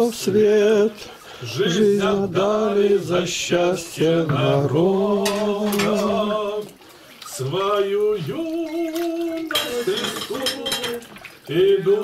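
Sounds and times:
hymn singing without instruments: 0:00.0 - 0:12.0
dishes clattering: 0:05.2 - 0:06.2, 0:09.5 - 0:11.1.

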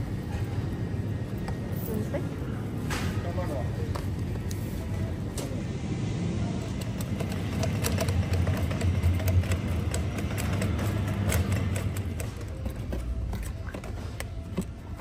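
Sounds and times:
shopping cart wheels rumbling: 0:06.0 - 0:15.0.

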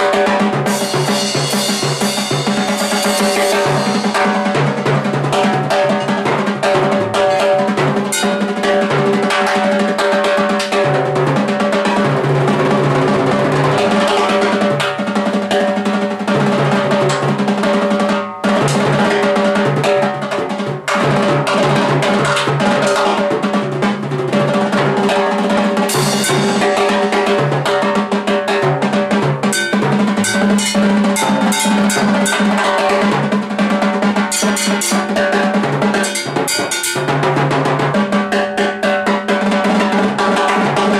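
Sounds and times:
timbales struck with sticks: 0:00.0 - 0:24.0, 0:25.2 - 0:38.0
cymbal hits: 0:00.7 - 0:04.8, 0:08.1 - 0:08.5, 0:25.9 - 0:27.0, 0:29.5 - 0:33.2, 0:34.3 - 0:35.4, 0:36.0 - 0:37.3.

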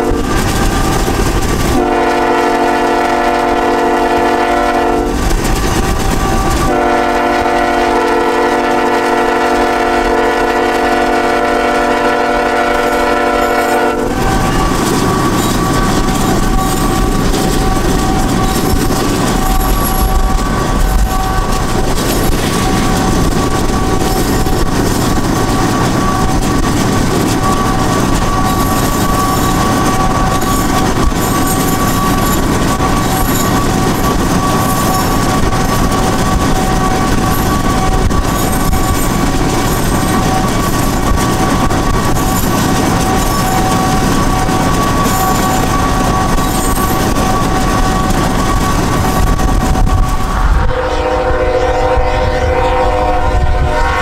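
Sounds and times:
diesel locomotive engine drone: 0:00.0 - 0:54.0
rolling train wheels: 0:00.0 - 0:54.0
road and wind noise: 0:48.1 - 0:54.0.

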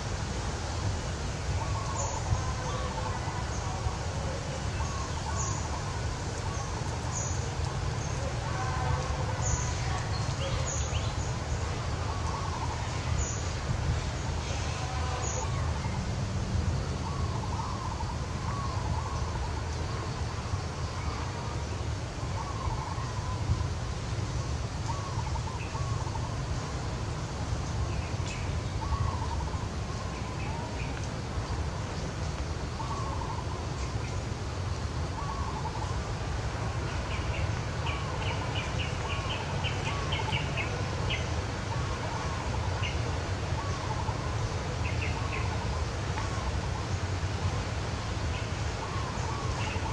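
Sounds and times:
faint wavering calls: 0:01.5 - 0:13.6, 0:32.7 - 0:34.0, 0:35.0 - 0:49.9.

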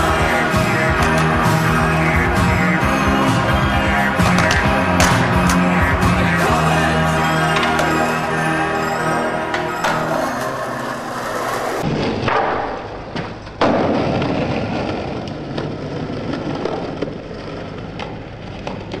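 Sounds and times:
skateboard wheels rolling on asphalt: 0:00.0 - 0:06.3, 0:09.5 - 0:19.0
background music: 0:00.0 - 0:11.8
skateboard thud on ground: 0:11.8 - 0:15.6.

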